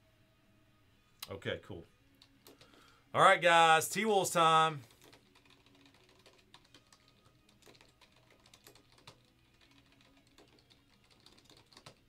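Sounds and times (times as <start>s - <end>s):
computer keyboard typing: 2.2s - 2.9s, 4.9s - 12.0s.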